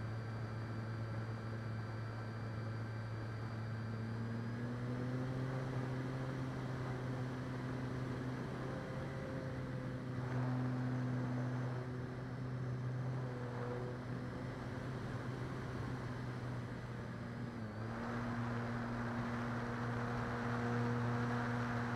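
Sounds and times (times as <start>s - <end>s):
electric motor and propeller hum: 4.5s - 21.9s.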